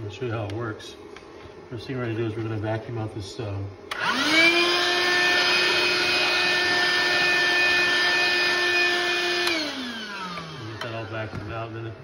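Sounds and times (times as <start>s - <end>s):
handheld vacuum motor whining: 3.9s - 11.7s.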